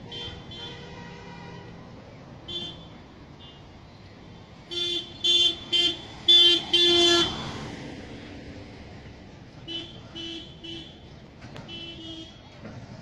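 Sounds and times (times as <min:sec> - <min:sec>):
vehicle horn honking: 0:00.0 - 0:01.8, 0:02.5 - 0:03.6, 0:04.7 - 0:07.4, 0:09.6 - 0:11.0, 0:11.6 - 0:12.6.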